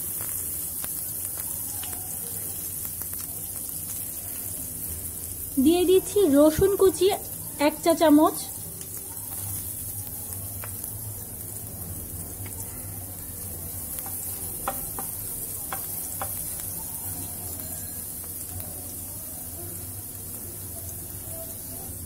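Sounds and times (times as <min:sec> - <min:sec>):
garlic sizzling in oil: 0:00.0 - 0:22.0
wooden spatula tapping pan: 0:13.9 - 0:16.7.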